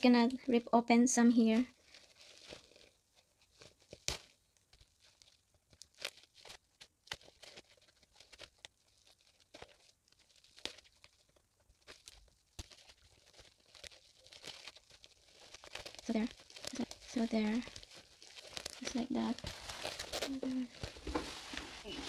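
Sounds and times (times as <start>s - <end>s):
fabric rustling: 1.3s - 4.2s, 7.4s - 22.0s.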